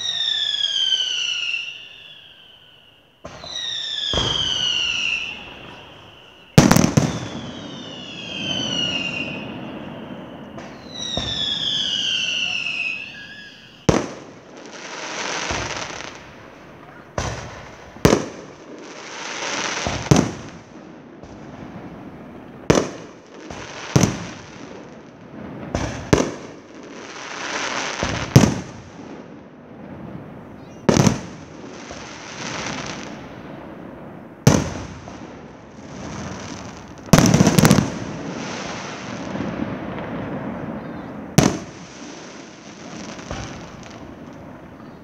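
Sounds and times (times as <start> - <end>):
firework crackling hiss: 0.0 - 45.0
fireworks bursting with bangs: 0.0 - 45.0.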